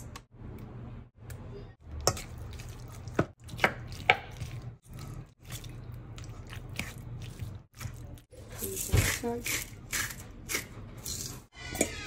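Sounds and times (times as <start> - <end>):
utensil squelching tuna salad: 2.0 - 11.4.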